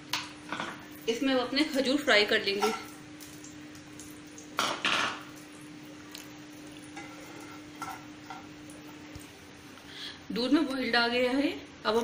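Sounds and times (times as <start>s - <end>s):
food frying in a pan: 0.0s - 9.8s
spoon scraping a pan: 2.6s - 2.9s, 6.9s - 8.5s.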